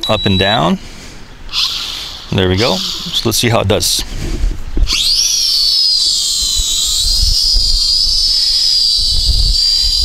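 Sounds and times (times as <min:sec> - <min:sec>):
drone propellers whining: 0:01.5 - 0:04.0, 0:04.8 - 0:10.0
wind rumble on microphone: 0:06.2 - 0:10.0.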